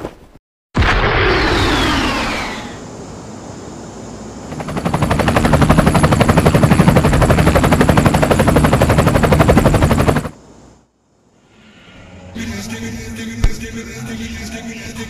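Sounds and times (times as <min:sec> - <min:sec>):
cartoon helicopter rotor chopping: 0:01.1 - 0:02.8, 0:04.5 - 0:10.4.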